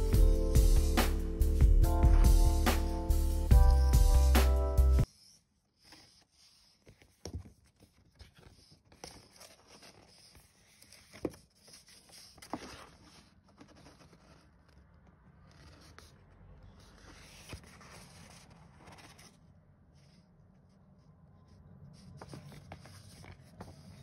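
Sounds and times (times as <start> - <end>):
paper and cardboard rustling: 5.9 - 19.5, 22.0 - 24.0.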